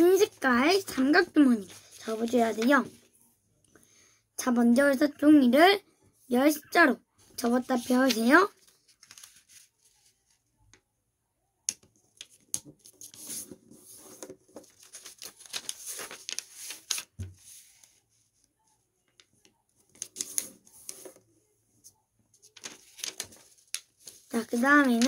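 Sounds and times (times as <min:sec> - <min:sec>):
paper rustling and crackling: 0:00.8 - 0:02.9, 0:07.7 - 0:10.4, 0:12.2 - 0:18.0, 0:22.3 - 0:25.0.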